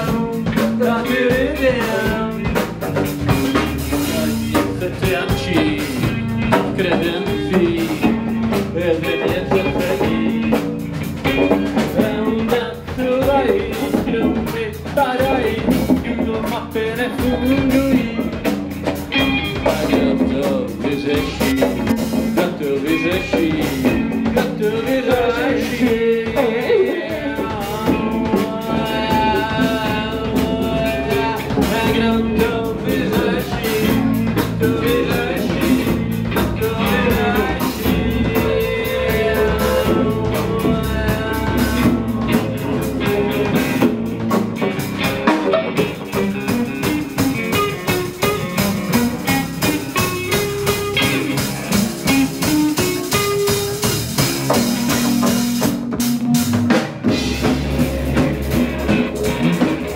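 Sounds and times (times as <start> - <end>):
bass guitar: 0.0 - 59.9
drum kit: 0.0 - 59.9
electric guitar: 0.0 - 59.9
didgeridoo: 19.5 - 59.9.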